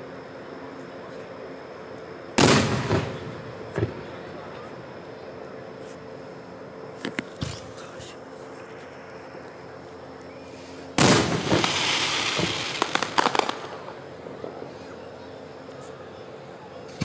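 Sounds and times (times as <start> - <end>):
fireworks crackling: 10.8 - 14.8
firework pops: 11.0 - 13.8.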